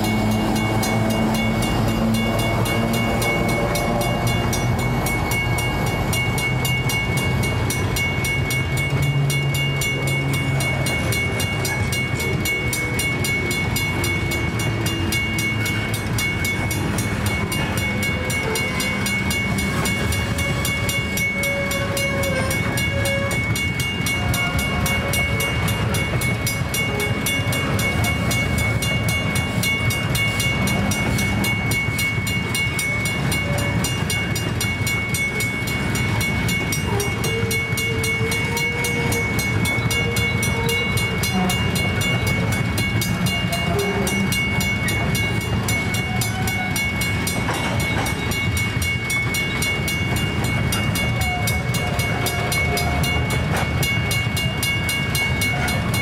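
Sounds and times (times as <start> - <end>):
diesel locomotive engine: 0.0 - 56.0
level crossing bell ringing: 0.0 - 56.0
train wagons rolling on rails: 0.0 - 56.0.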